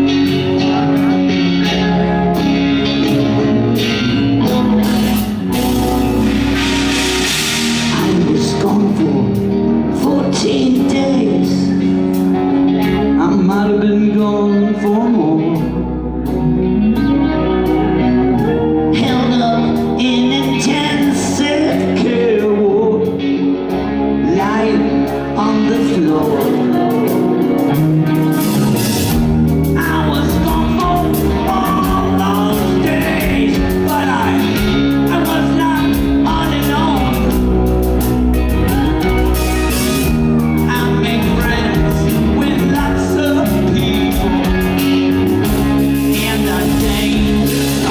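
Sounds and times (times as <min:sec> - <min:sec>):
man singing lead vocal: 0:00.0 - 0:12.2, 0:12.8 - 0:16.4, 0:17.9 - 0:28.7, 0:29.6 - 0:47.9
bass guitar: 0:00.0 - 0:47.9
drums: 0:00.0 - 0:47.9
electric guitar: 0:00.0 - 0:47.9
cymbals: 0:04.8 - 0:08.9.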